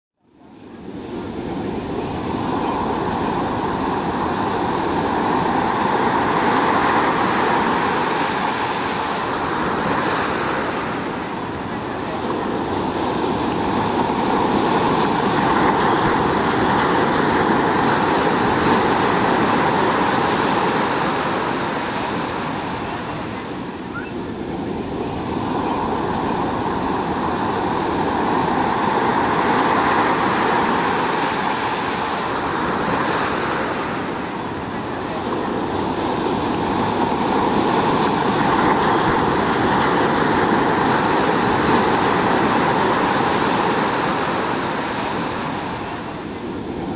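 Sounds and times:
surf breaking on a beach: 0.3 - 46.9.

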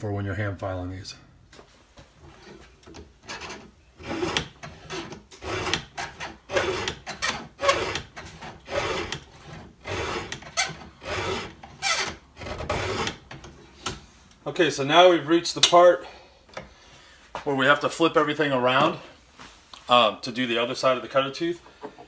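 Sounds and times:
file rasping on chainsaw chain: 3.3 - 12.1, 12.7 - 13.2.

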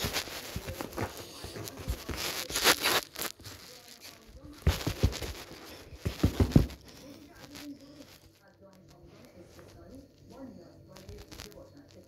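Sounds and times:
cat scratching fabric: 0.0 - 8.3.

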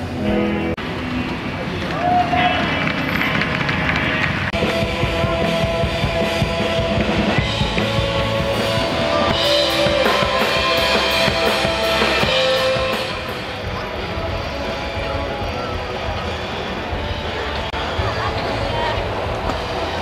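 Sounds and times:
rock band playing live: 4.5 - 20.0.

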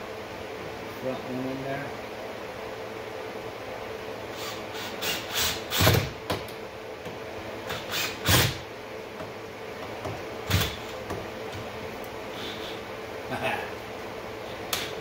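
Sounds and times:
cordless drill driving screws: 4.4 - 6.1, 7.7 - 8.6.

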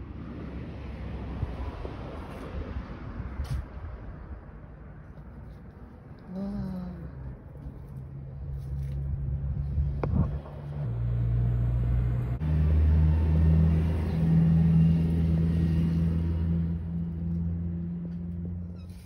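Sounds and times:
low engine rumble: 3.6 - 19.0.

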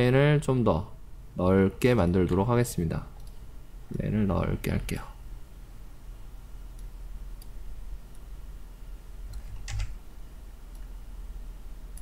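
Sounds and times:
low steady hum: 0.0 - 12.0
computer mouse clicks: 9.3 - 10.0.

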